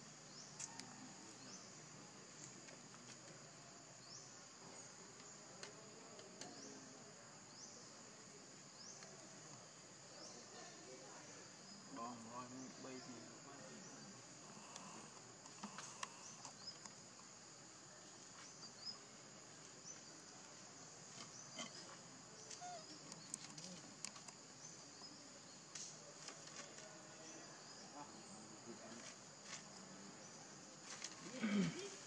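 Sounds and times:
insects droning: 0.0s - 32.0s
faint clicks: 14.6s - 17.3s, 22.4s - 24.4s.

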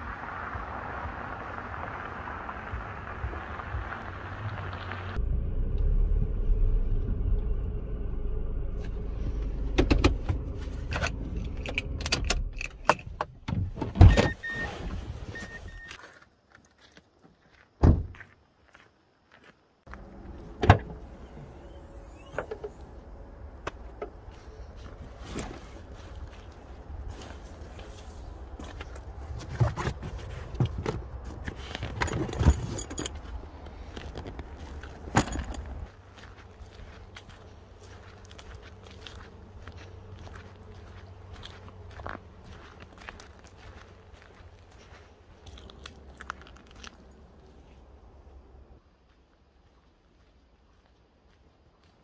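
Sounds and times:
car engine idling: 2.6s - 12.0s
heavy thunk: 17.8s - 18.1s
metal buckle clinking: 35.1s - 35.8s.

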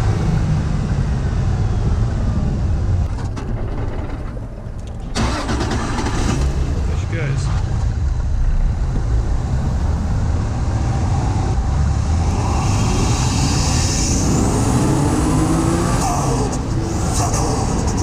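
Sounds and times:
car engine accelerating: 5.0s - 18.0s.

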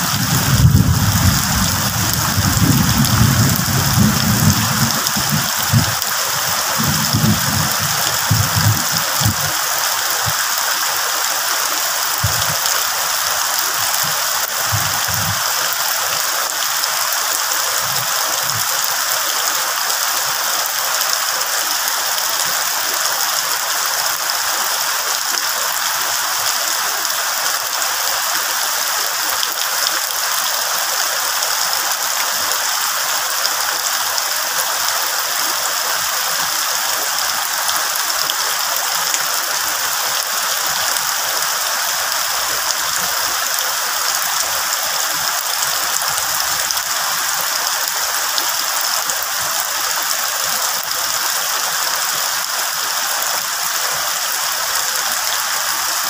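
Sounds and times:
low rumbling: 0.0s - 9.4s
heavy rain on leaves: 0.0s - 56.0s.

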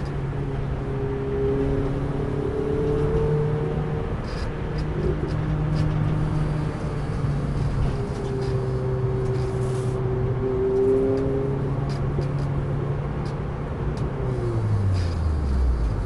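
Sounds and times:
road and tyre noise: 0.0s - 16.0s
car engine running: 3.2s - 10.0s, 10.9s - 16.0s.

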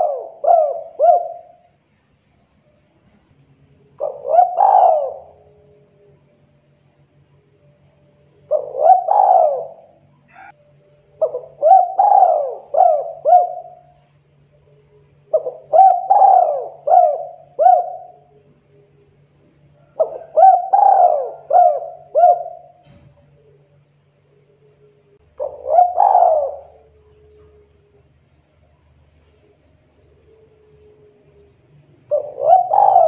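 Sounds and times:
dove cooing: 0.0s - 1.7s, 4.0s - 5.8s, 8.4s - 10.6s, 11.2s - 14.0s, 15.3s - 18.4s, 19.8s - 22.8s, 25.2s - 27.7s, 32.0s - 33.0s
faint low hum: 0.0s - 33.0s.

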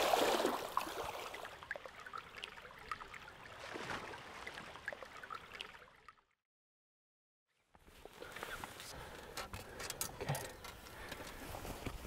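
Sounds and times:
stream water trickling: 0.0s - 6.4s
water plinks and splashes: 0.0s - 6.4s.

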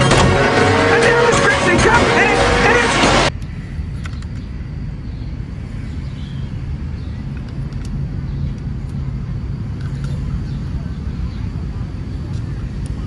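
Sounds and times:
film soundtrack music: 0.0s - 3.3s
racing cars: 0.0s - 3.3s
low outdoor rumble: 0.0s - 13.0s.

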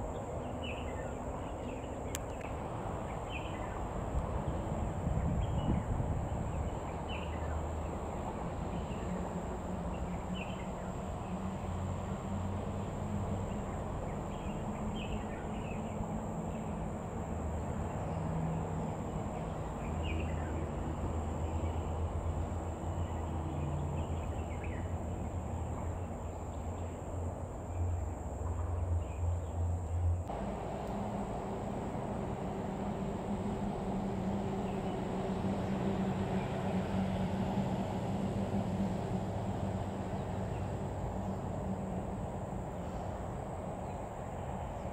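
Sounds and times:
high insect drone: 0.0s - 44.9s
low rumble: 30.3s - 36.8s.

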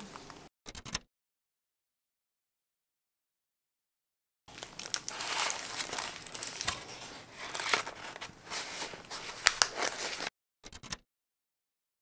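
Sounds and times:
sharp paper crackles: 4.5s - 10.3s
wrapping paper crinkling: 4.5s - 10.3s.

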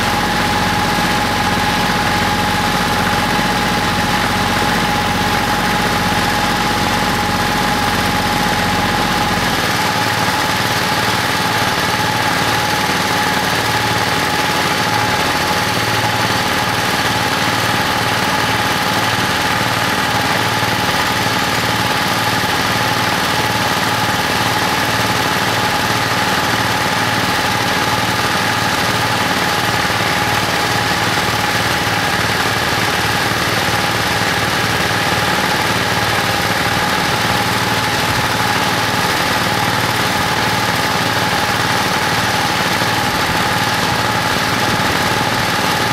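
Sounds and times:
engine idling: 0.0s - 45.9s.

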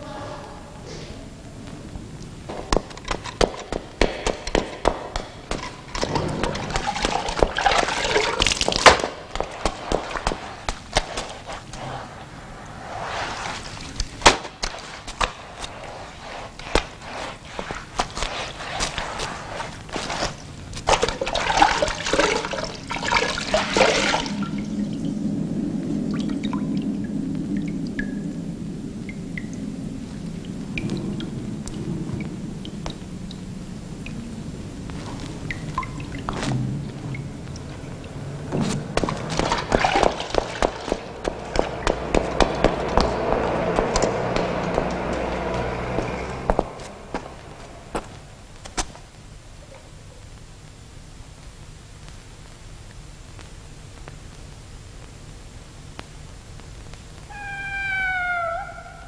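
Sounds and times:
rustling: 1.0s - 24.5s
footsteps on stone stairs: 2.5s - 11.9s, 38.5s - 49.1s
hands squelching wet mass: 2.5s - 26.6s, 34.1s - 49.2s
faint ticks: 29.0s - 38.2s.

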